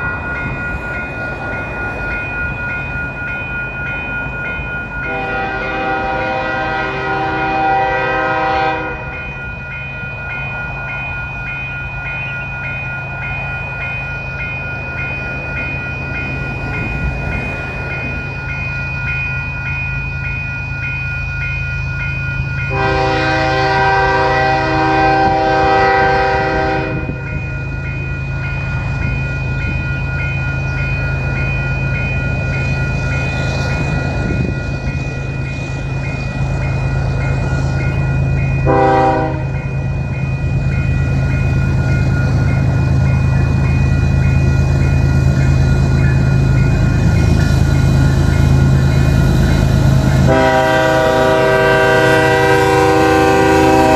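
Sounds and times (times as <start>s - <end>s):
diesel locomotive engine drone: 0.0s - 53.9s
train air horn blasts: 5.1s - 9.1s, 22.7s - 27.2s, 38.6s - 39.6s, 50.2s - 53.9s.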